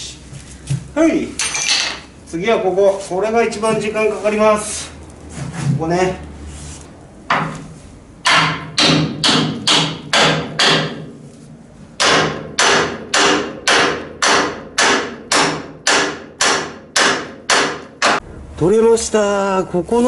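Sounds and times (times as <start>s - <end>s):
hammer striking steel: 8.2s - 11.1s, 12.0s - 18.3s.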